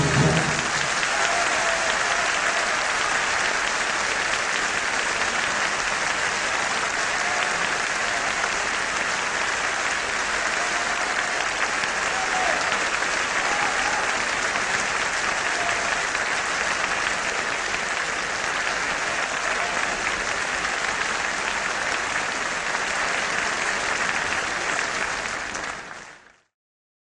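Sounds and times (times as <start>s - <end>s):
audience applauding: 0.0s - 26.5s.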